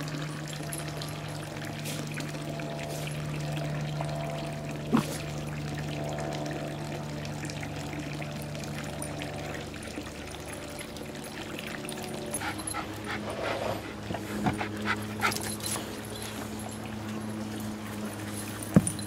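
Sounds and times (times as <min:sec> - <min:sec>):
dogs yipping and barking: 0:12.3 - 0:16.6.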